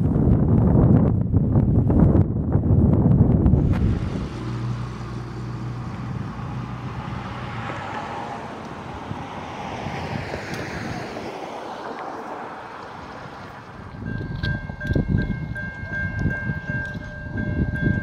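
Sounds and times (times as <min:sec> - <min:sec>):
wind buffeting microphone: 0:00.0 - 0:18.0
road traffic passing: 0:03.3 - 0:18.0.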